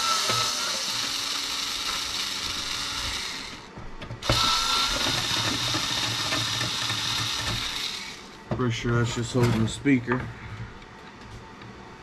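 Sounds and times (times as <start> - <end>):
cordless power screwdriver running: 0.0 - 8.3.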